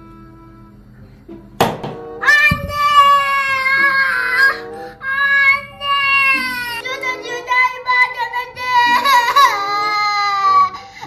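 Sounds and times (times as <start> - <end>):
girl wailing: 2.2 - 10.8.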